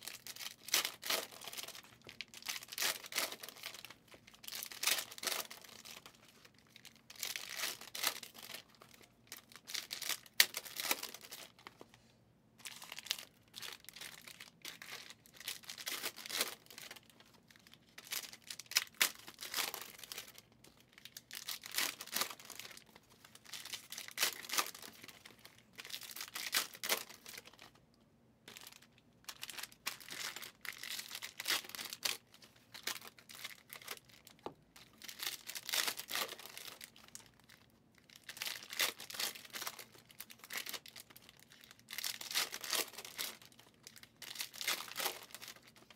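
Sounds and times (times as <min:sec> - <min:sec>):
card pack wrappers tearing: 0:00.0 - 0:11.7, 0:21.0 - 0:27.6, 0:34.9 - 0:37.1, 0:38.1 - 0:45.9.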